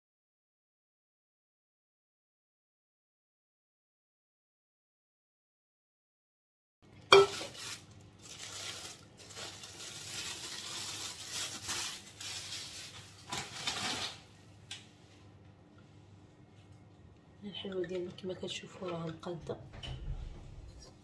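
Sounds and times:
metal pan clank: 7.1 - 7.5
plastic sheet crinkling: 7.1 - 14.3.

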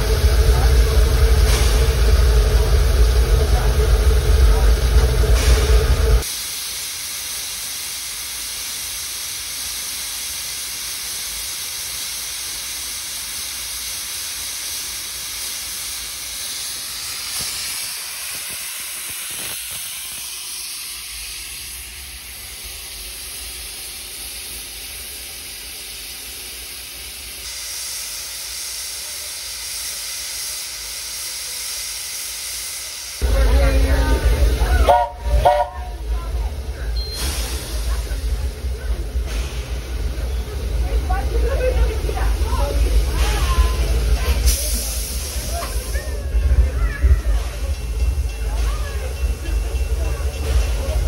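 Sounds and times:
steam venting hiss: 0.0 - 51.0.

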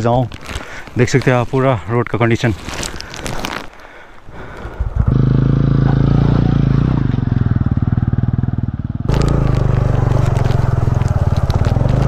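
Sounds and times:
motorcycle engine running: 5.0 - 12.0
stones clattering under tyres: 9.1 - 12.0.

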